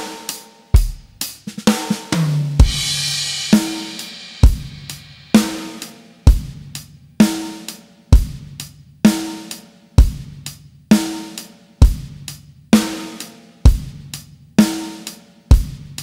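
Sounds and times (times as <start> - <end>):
ringing snare drum: 0.0 - 16.0
kick drum: 2.6 - 2.9, 6.3 - 6.6, 8.2 - 8.4, 10.0 - 10.3, 11.8 - 12.2.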